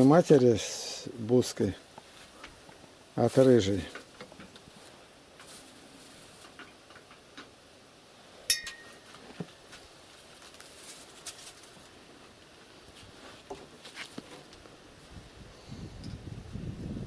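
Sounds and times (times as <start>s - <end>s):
sharp click with high ring: 8.5s - 9.0s.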